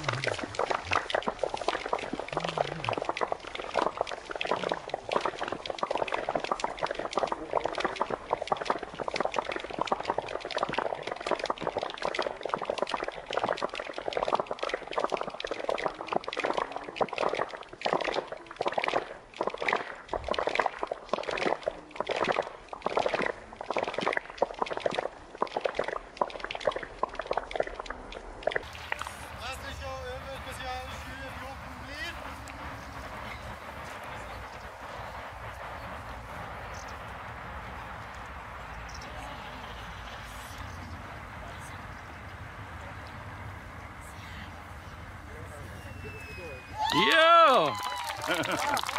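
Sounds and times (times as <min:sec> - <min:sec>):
spectators clapping: 0:00.0 - 0:05.7, 0:28.6 - 0:44.0, 0:46.0 - 0:48.9.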